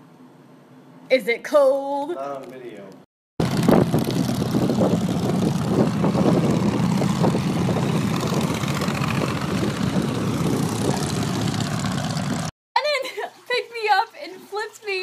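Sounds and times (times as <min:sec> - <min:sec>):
motorcycles riding past: 0:03.4 - 0:12.5.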